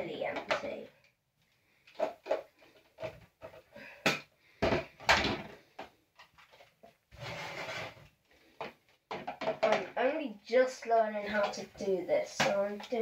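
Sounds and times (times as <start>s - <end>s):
rough scraping: 7.1s - 8.1s
plastic toy bin knocking: 9.1s - 10.0s.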